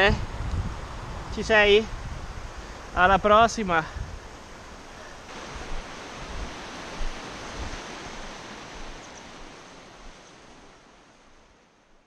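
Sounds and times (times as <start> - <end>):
mountain stream rushing: 0.0 - 12.0.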